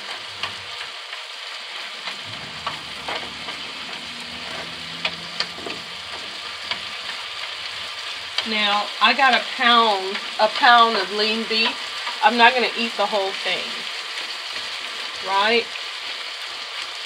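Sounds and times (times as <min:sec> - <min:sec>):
beef sizzling in a skillet: 0:00.0 - 0:17.0.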